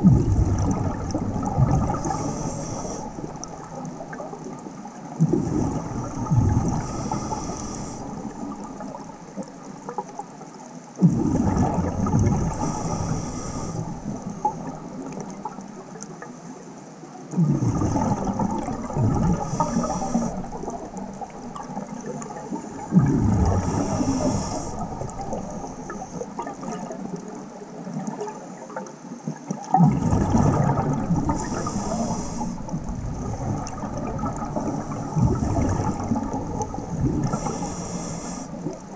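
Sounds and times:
bubbles gushing and gurgling: 0:00.0 - 0:16.4, 0:17.3 - 0:38.9
regulator inhalation hiss: 0:02.0 - 0:03.2, 0:06.8 - 0:08.1, 0:12.6 - 0:14.0, 0:19.4 - 0:20.5, 0:23.6 - 0:24.9, 0:31.4 - 0:32.8, 0:37.3 - 0:38.7.

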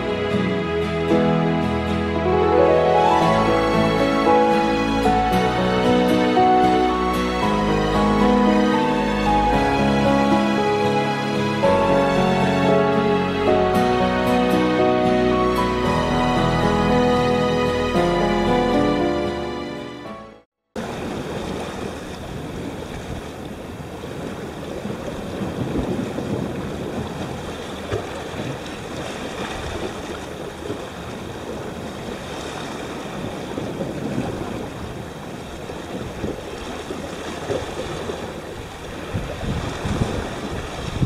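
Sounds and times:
sea washing against rocks: 0:20.8 - 0:41.0
wind buffeting microphone: 0:20.8 - 0:41.0.

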